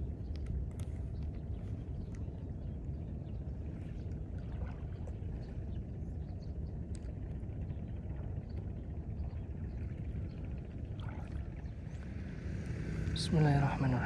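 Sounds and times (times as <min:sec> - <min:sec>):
low shore rumble: 0:00.0 - 0:14.0
water sounds: 0:00.0 - 0:14.0
faint small ticks: 0:06.8 - 0:07.3.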